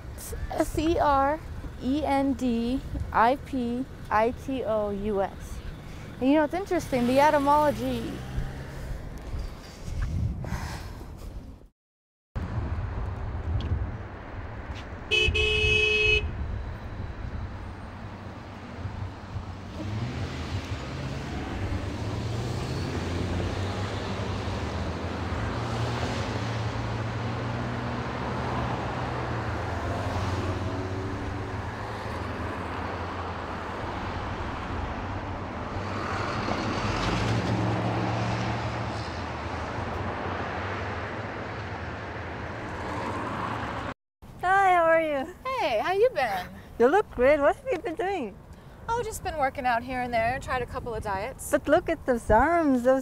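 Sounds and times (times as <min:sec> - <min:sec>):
street traffic passing: 0:00.0 - 0:11.7, 0:12.4 - 0:53.0
car horn honk: 0:15.1 - 0:16.4.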